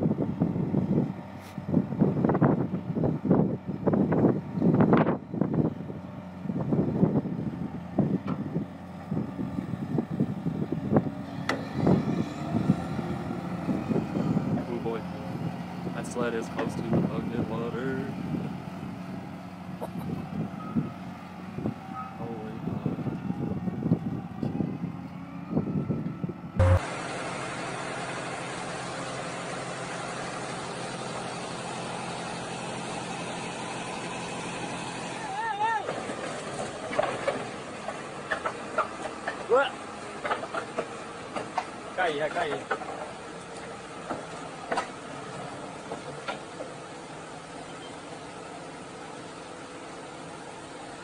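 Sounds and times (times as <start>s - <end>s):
wind buffeting microphone: 0.0s - 26.6s
heavy machinery diesel engines: 0.0s - 51.0s.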